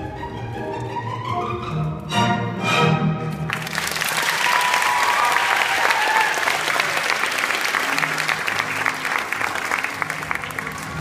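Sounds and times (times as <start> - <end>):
audience applauding: 3.5 - 11.0.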